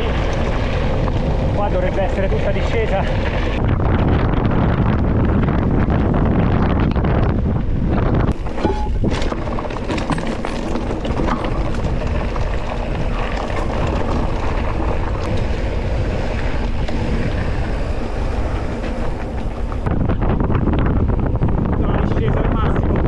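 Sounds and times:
bike rattling: 0.0s - 21.6s
wind noise on microphone: 0.0s - 23.0s
tyre rumble: 7.8s - 19.9s.

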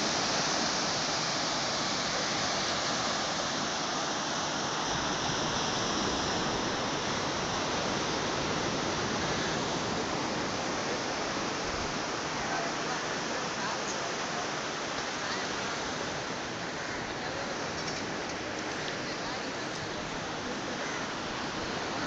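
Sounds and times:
ocean surf breaking on beach: 0.0s - 22.0s.

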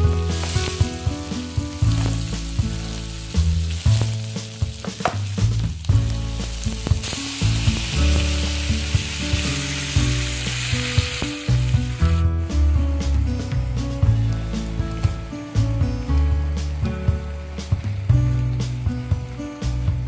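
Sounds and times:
vegetables sizzling in frying pan: 0.0s - 12.7s, 16.4s - 18.9s
low background music: 0.0s - 20.0s.

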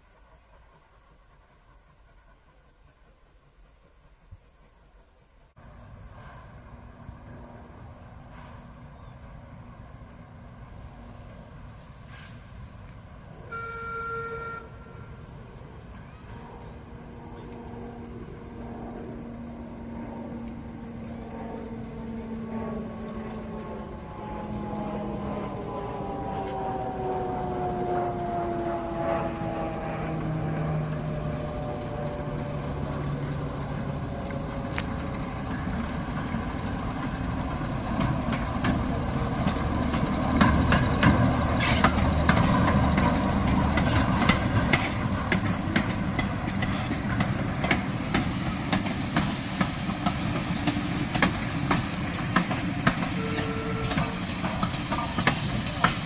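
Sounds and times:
diesel locomotive engine running: 0.0s - 56.0s
wheels clicking over rail joints: 31.0s - 56.0s.

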